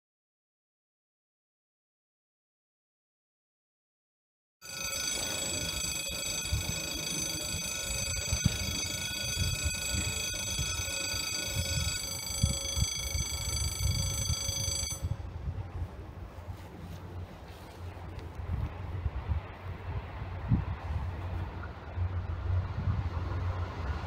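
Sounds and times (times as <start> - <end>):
level crossing electronic ringing: 4.6 - 15.2
wind rumbling on microphone: 7.6 - 24.0.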